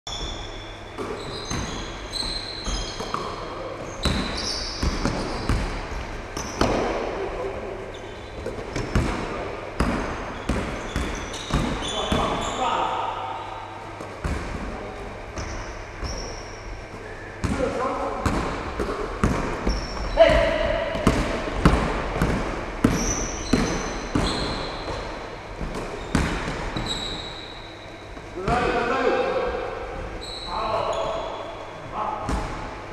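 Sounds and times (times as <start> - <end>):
sneakers squeaking: 0.1 - 32.9
basketball bouncing: 4.0 - 7.0, 8.4 - 12.5, 14.0 - 14.7, 17.4 - 27.2, 32.2 - 32.6.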